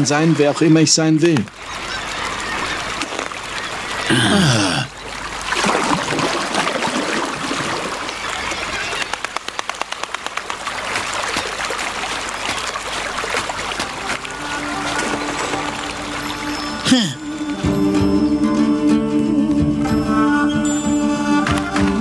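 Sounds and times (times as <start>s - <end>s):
stream running water: 0.0s - 22.0s
quick run of ticks: 8.8s - 12.6s.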